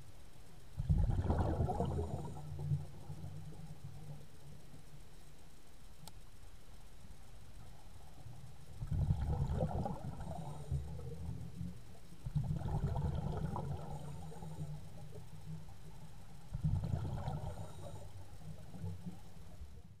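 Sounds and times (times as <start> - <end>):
underwater exhaled bubbles: 0.8 - 4.4, 8.6 - 20.0.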